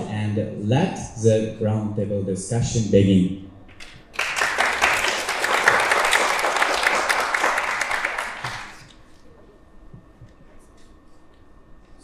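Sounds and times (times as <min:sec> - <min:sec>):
group of people applauding: 0:03.7 - 0:09.0.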